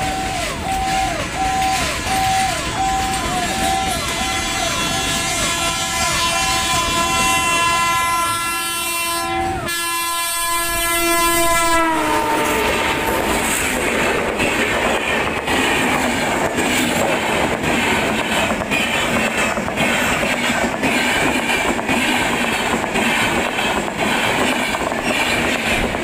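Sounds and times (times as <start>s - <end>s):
train wheels clattering: 0.0s - 8.3s, 10.4s - 26.0s
locomotive horn: 0.0s - 13.8s.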